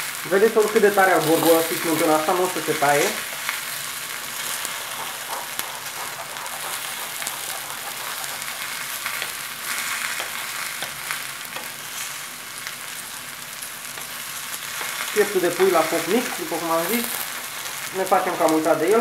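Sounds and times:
sauce bubbling in a frying pan: 0.0 - 19.0
metal spoon stirring: 4.4 - 11.8, 13.9 - 18.2.

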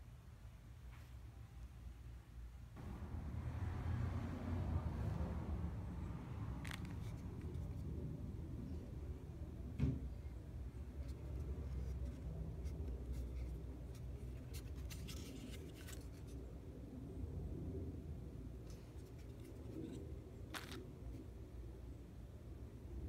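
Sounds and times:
low steady rumble: 1.8 - 23.0
thump: 9.8 - 10.1.

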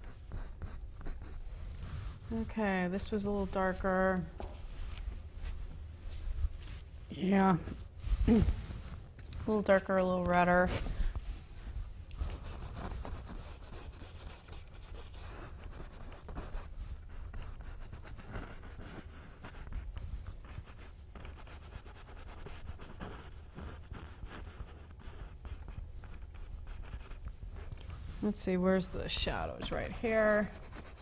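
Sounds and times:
brush scrubbing on canvas: 12.2 - 31.0.

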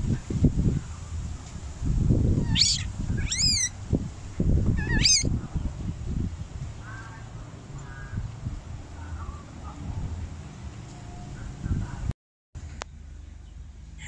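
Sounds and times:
baby monkey squealing: 2.4 - 3.7, 4.8 - 5.3.

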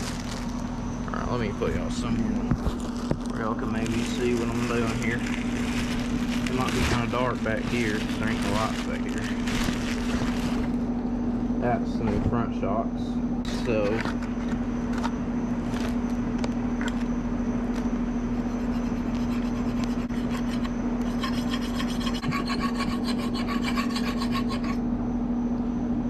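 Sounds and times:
plastic packaging crinkling: 0.0 - 0.8, 1.8 - 10.8
steady low hum: 0.0 - 26.0.

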